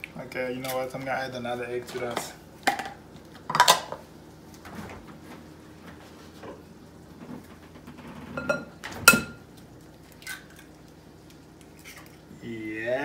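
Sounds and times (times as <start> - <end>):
egg cracking: 9.5 - 12.4.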